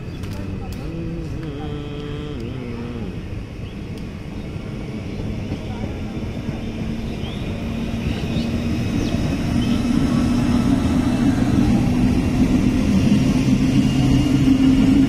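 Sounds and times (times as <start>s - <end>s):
traction motors humming: 0.0s - 15.0s
wheels rumbling on rails: 0.0s - 15.0s.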